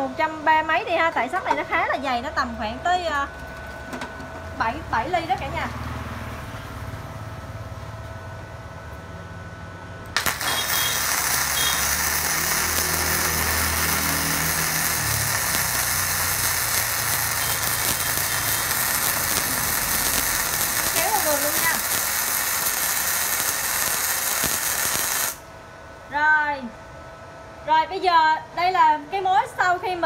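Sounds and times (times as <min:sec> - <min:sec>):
welding arc crackling: 0:10.1 - 0:25.5.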